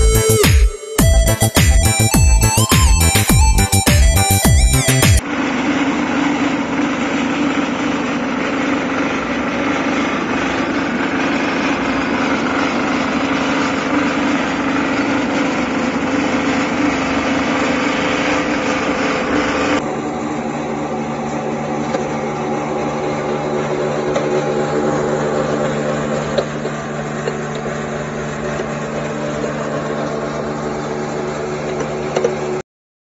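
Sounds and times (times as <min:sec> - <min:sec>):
pellet mill humming and rattling: 0:01.0 - 0:32.6.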